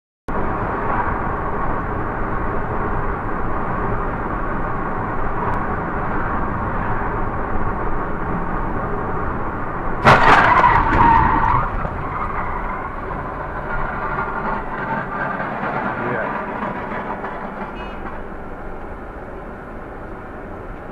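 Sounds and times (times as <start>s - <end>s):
car road and engine noise: 0.3s - 20.9s
car collision crash: 10.0s - 17.8s
screeching: 10.0s - 18.1s.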